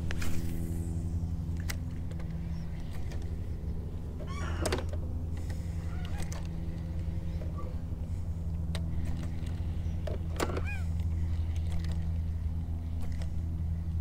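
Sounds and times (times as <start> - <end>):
electric trolling motor humming: 0.0 - 14.0
bird call: 10.4 - 11.0.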